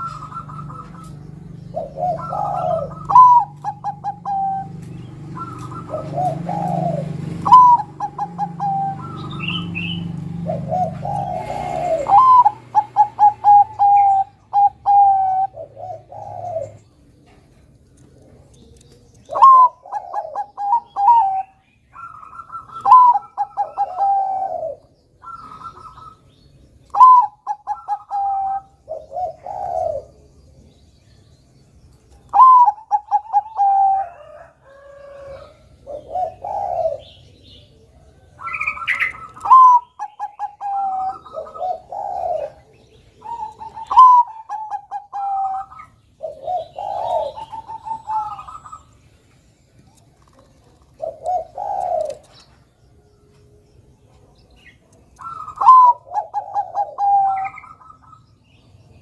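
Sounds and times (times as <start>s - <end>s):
dove cooing: 0.0s - 30.8s, 32.1s - 59.0s.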